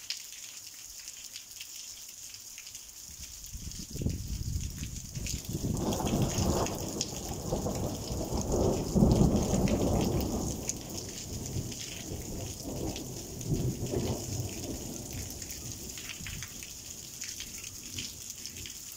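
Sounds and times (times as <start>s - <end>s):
rain pattering on stone and roofs: 0.0s - 18.9s
thunder rumbling: 4.0s - 16.7s.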